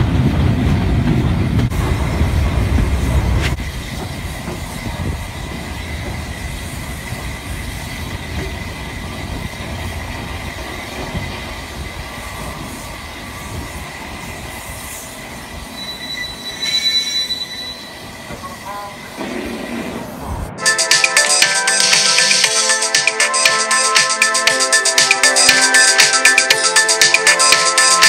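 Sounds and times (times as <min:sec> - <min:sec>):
train wheels rumbling on track: 0:00.0 - 0:20.6
sharp high squeal: 0:15.7 - 0:18.6
thin wheel squeal: 0:15.8 - 0:18.0.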